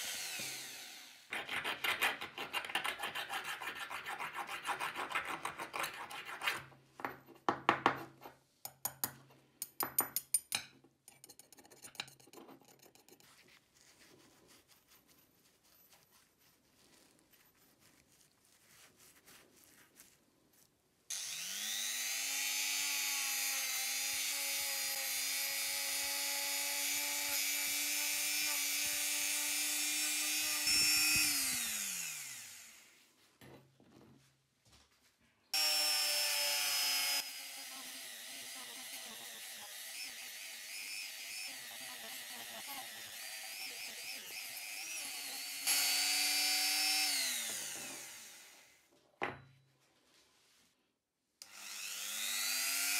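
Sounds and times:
rotary tool whining: 0.0 - 1.3, 21.1 - 33.0, 35.6 - 48.8, 51.4 - 52.9.

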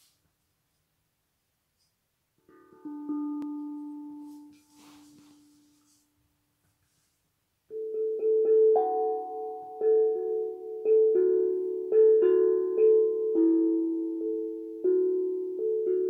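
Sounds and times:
steel tongue drum notes: 2.4 - 6.0.

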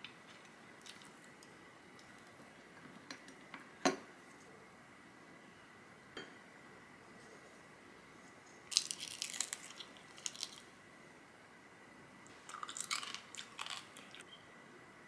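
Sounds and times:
crisp crunching and crackling: 8.7 - 10.7, 12.4 - 14.2.

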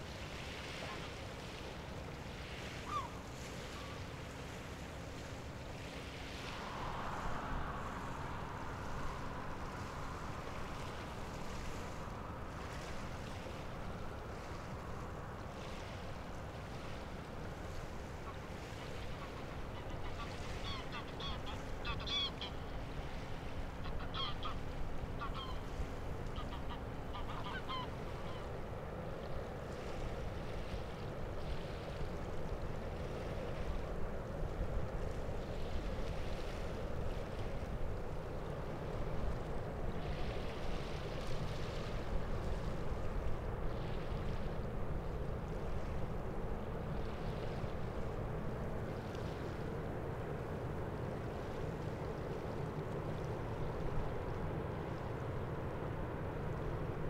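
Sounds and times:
wind rumble: 6.0 - 13.0
passing ship rumble: 6.1 - 12.8.

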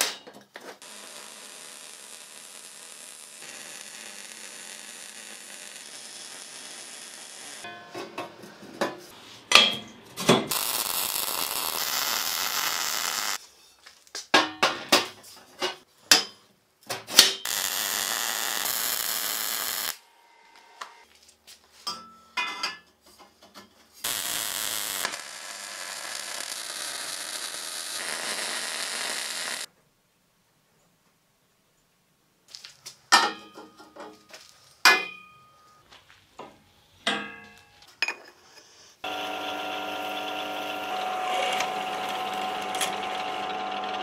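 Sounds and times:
hissing power tool: 0.8 - 7.7, 10.5 - 13.4, 17.5 - 20.0, 24.0 - 29.7, 39.0 - 44.0.

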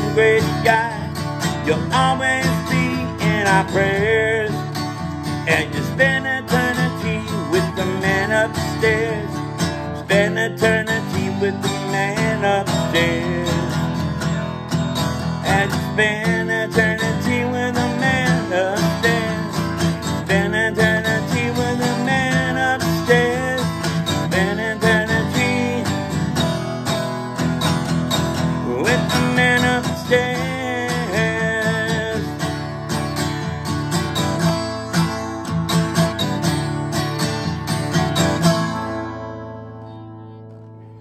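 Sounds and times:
acoustic guitar strumming: 0.0 - 41.0.

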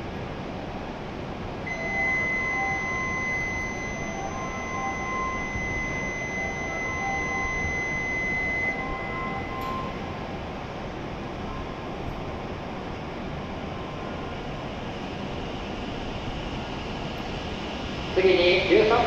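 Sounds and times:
steady high electronic tone: 1.7 - 10.5.

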